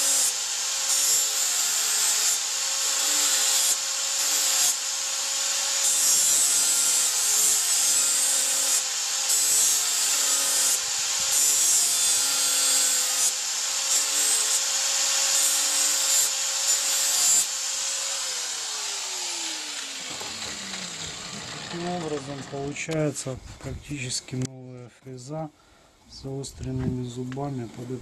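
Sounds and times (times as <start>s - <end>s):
electric grinder motor hum: 0.0s - 22.9s
metal grinding: 15.5s - 23.1s.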